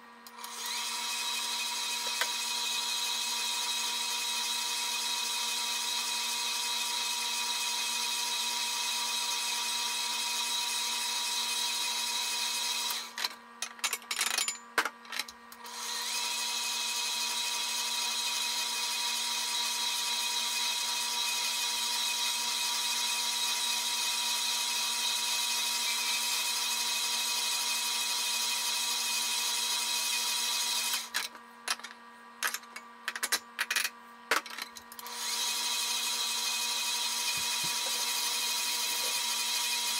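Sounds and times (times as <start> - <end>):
stand mixer motor humming: 35.1 - 39.9.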